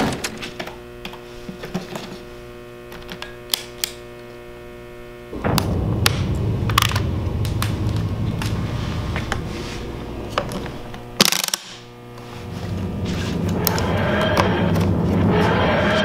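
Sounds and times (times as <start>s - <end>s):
low mechanical rumbling: 5.1s - 16.0s
loud sharp crack: 5.4s - 11.9s.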